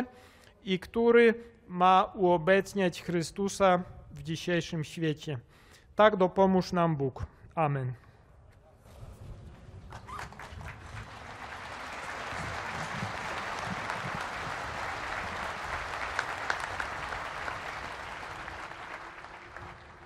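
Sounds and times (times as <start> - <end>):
crowd applauding: 9.6 - 20.0
sharp individual claps: 9.9 - 20.0.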